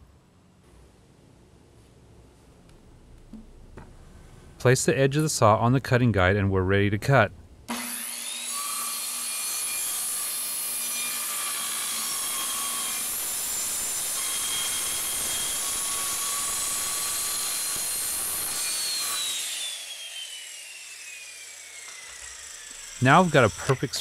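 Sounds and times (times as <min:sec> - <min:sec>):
circular saw cutting wood: 0:07.7 - 0:24.0
saw motor winding down: 0:11.2 - 0:24.0.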